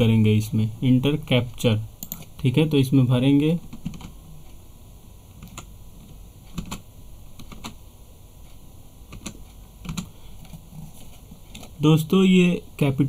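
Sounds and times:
computer keyboard keystrokes: 2.0s - 2.3s, 3.7s - 4.2s, 5.3s - 5.7s, 6.5s - 6.8s, 7.4s - 7.8s, 9.1s - 10.6s.

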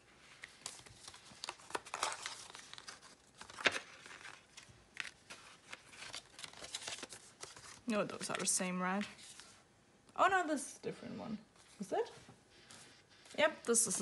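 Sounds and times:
paper sleeve crinkling: 0.3s - 9.5s.

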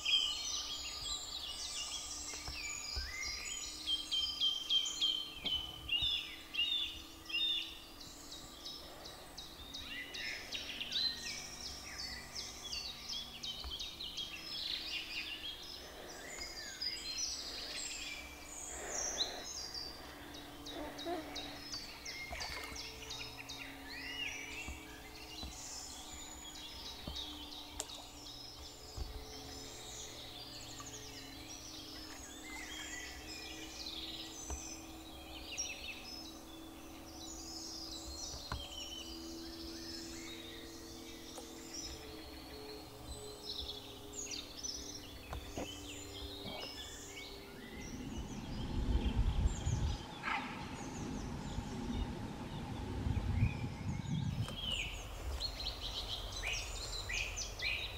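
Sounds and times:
songbirds chorus: 0.0s - 57.9s
low rumble: 46.8s - 57.8s.

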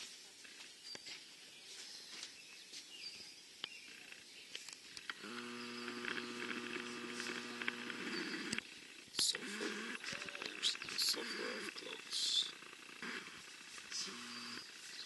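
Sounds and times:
low mechanical hum: 5.0s - 15.0s.

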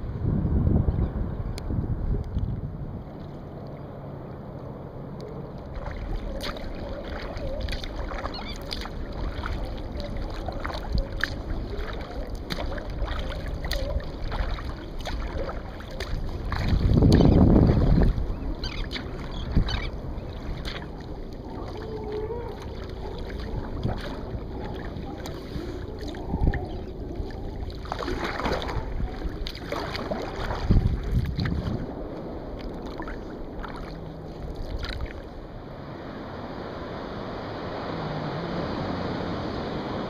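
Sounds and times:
steady low water rush: 0.0s - 40.0s
paddle strokes splashing water: 5.2s - 35.6s.

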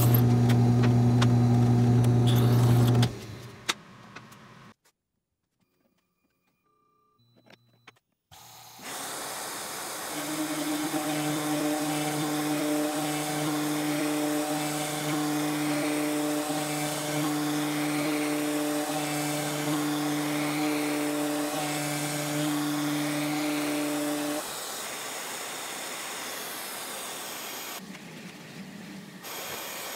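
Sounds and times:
router cutting plywood hiss: 8.3s - 27.8s, 29.2s - 29.9s.

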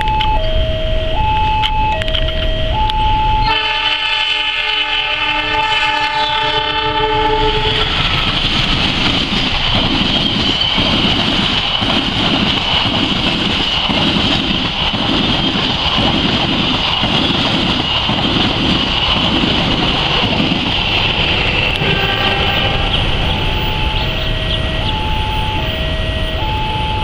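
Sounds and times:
train wheels clacking on rails: 7.4s - 27.0s.

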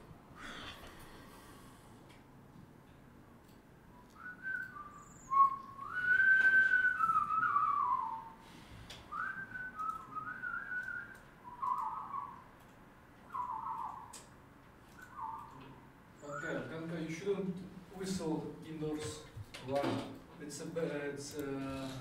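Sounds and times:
man whistling a tune: 4.2s - 8.4s, 9.1s - 12.4s, 13.3s - 14.1s, 15.0s - 15.6s.

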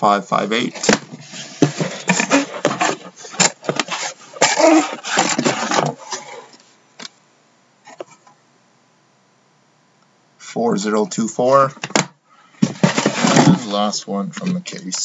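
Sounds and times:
cardboard boxes scraping and bumping: 0.8s - 6.5s, 12.6s - 13.8s.

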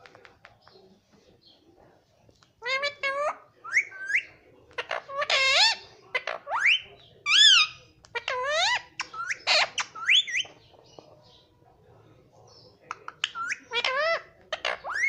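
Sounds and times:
parakeet squeaky calls: 2.6s - 10.5s, 13.2s - 15.0s.

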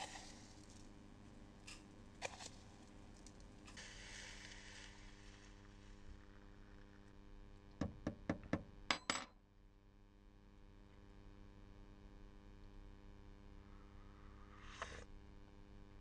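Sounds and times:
hot water pouring into mug: 0.0s - 0.8s, 2.2s - 7.1s.

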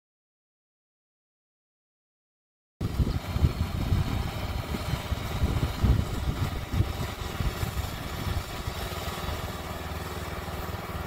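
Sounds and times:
gas engine running: 2.8s - 11.0s.

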